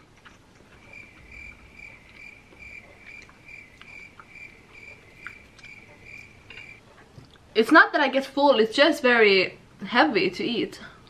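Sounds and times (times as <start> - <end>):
cricket chirping: 0.8 - 6.8.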